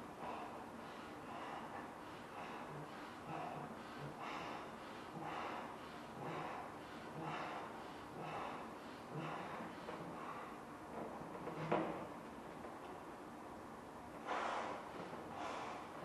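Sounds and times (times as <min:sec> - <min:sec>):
person gasping breaths: 0:00.1 - 0:10.6, 0:14.2 - 0:16.0.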